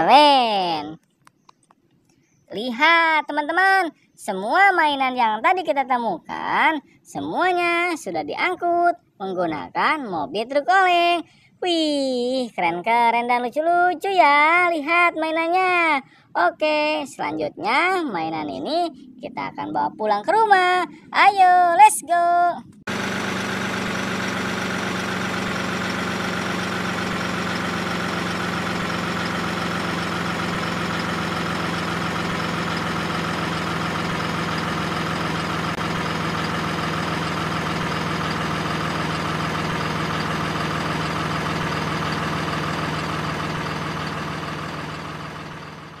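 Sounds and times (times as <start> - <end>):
truck engine running: 22.9 - 46.0.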